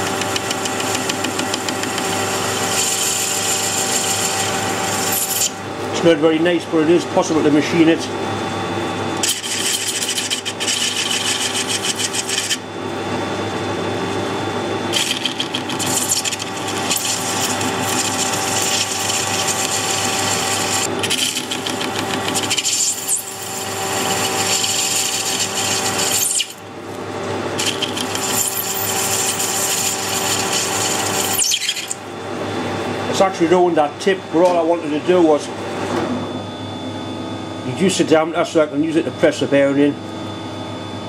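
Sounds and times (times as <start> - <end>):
lathe harsh scraping cut: 0.0 - 5.6, 9.2 - 12.7, 14.9 - 26.6, 27.6 - 32.0
lathe running hum: 0.0 - 41.0.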